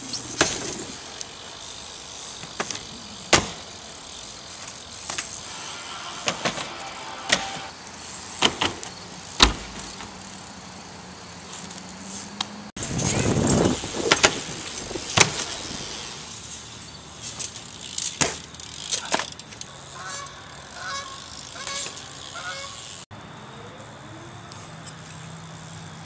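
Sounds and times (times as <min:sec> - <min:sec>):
bike knocks on concrete: 0:00.3 - 0:00.9, 0:02.4 - 0:03.6, 0:08.4 - 0:10.1, 0:14.0 - 0:14.5, 0:15.1 - 0:15.6, 0:18.0 - 0:19.4
honk-like calls: 0:20.0 - 0:22.8.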